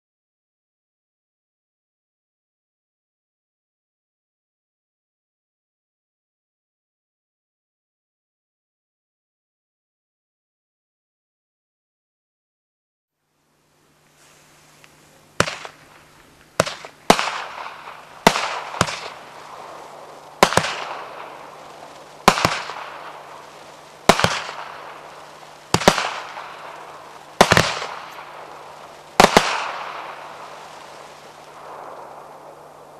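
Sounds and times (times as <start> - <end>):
firework bangs with hiss: 14.1 - 32.9.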